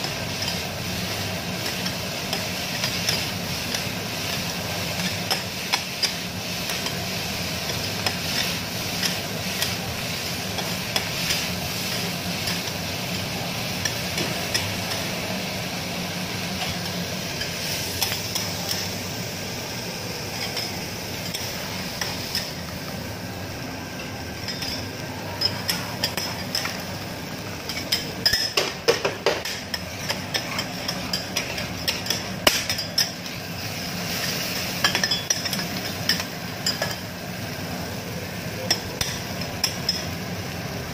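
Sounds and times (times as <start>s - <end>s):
food sizzling on griddle: 0.0s - 40.9s
spatulas tapping griddle: 1.5s - 7.0s, 27.6s - 33.4s, 38.6s - 40.2s.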